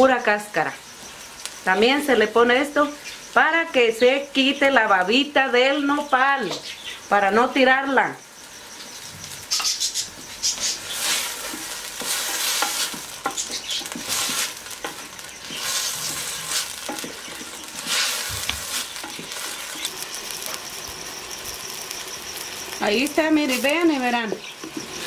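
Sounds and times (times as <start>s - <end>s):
vegetables sizzling in hot oil: 0.0s - 25.0s
wooden spoon knocking pot: 11.4s - 15.6s, 16.8s - 17.8s.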